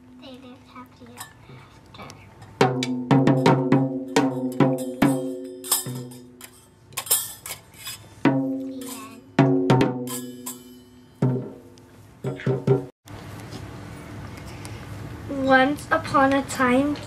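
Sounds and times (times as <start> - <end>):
hand drums struck with mallets: 2.6 - 6.4, 8.3 - 8.7, 9.4 - 12.9
hand cymbals clashing: 4.0 - 8.2, 10.0 - 11.3.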